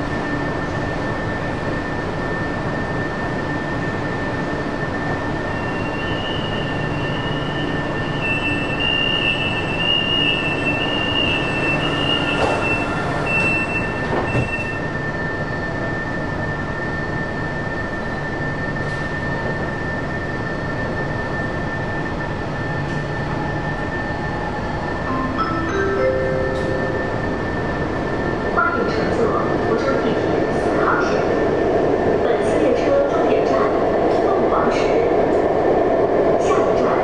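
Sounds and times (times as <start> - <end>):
train high whine and hum: 0.0 - 37.0
wavering high tones: 25.1 - 28.3.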